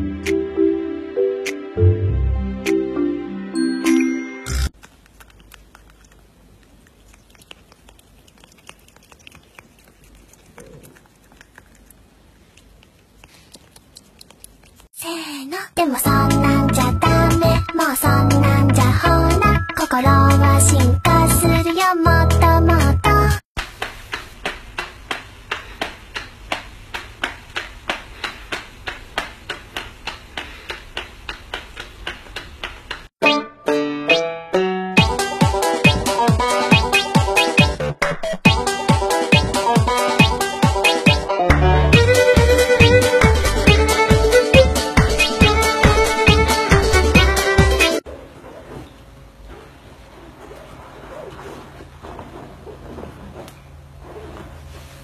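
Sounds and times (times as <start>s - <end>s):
kitten tongue clicks and smacks: 4.8s - 15.0s.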